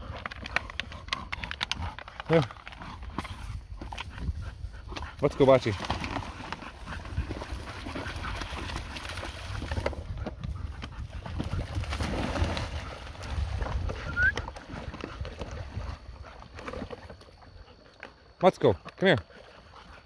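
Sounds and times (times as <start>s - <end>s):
wind rumble on microphone: 3.2s - 5.2s, 6.8s - 16.5s
dogs splashing in water: 4.8s - 20.0s.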